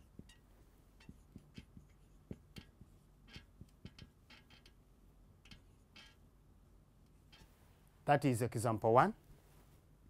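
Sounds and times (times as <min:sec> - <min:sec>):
marker squeaking on whiteboard: 0:00.0 - 0:06.3, 0:07.1 - 0:07.6.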